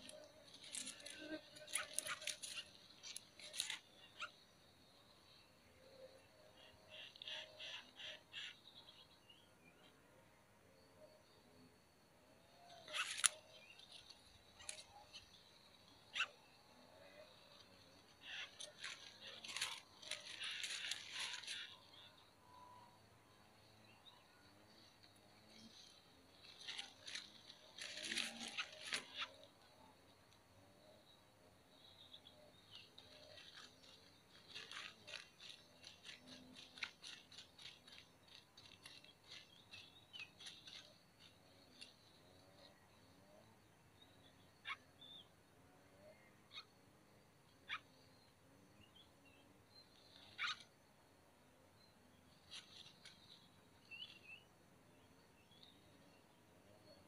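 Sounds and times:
dry grass rustling and crackling: 0.0s - 3.8s, 18.2s - 21.8s, 26.4s - 29.3s, 33.3s - 41.3s
faint high chirps: 10.6s - 45.3s.

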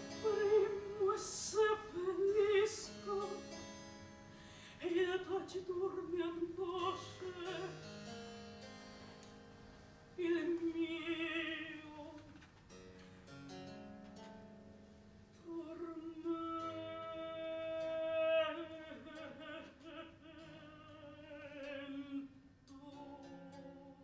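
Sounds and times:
woman singing opera with vibrato: 0.0s - 3.6s, 4.7s - 7.8s, 10.2s - 12.4s, 15.4s - 24.0s.

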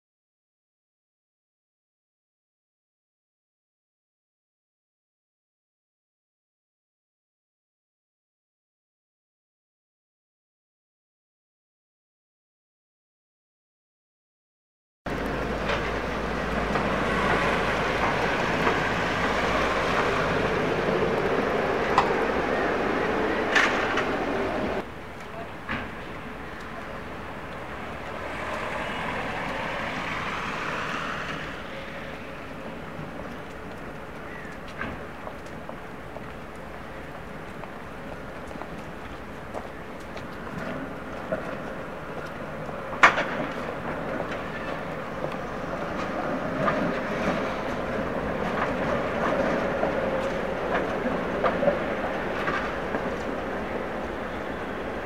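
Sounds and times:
clicks over rail joints: 15.1s - 20.2s, 23.4s - 24.2s, 33.0s - 53.4s
tram rushing past on wet track: 15.1s - 55.0s.

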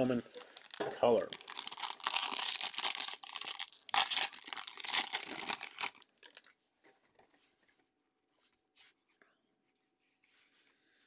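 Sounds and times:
foil pack tearing and crinkling: 0.0s - 6.4s.

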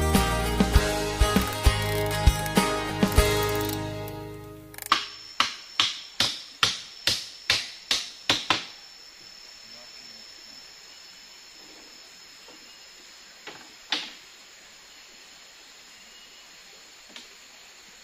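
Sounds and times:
high insect drone: 0.0s - 18.0s.

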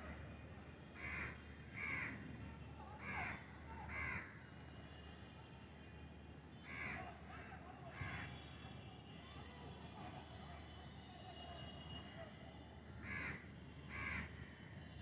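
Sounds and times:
crow cawing: 1.0s - 2.2s, 3.0s - 4.4s, 6.6s - 8.4s, 12.9s - 14.5s.

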